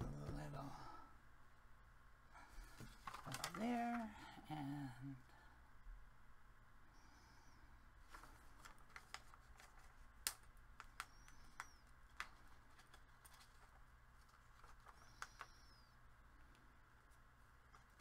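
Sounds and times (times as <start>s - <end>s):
faint high chirps: 6.9s - 7.8s, 10.9s - 12.0s, 14.9s - 16.1s
paper handling clicks and taps: 8.1s - 15.6s.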